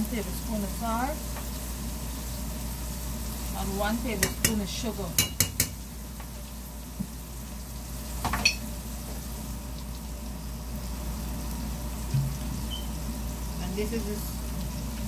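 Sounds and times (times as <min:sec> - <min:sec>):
hot oil sizzling: 0:00.0 - 0:15.0
brief knock: 0:12.1 - 0:12.4.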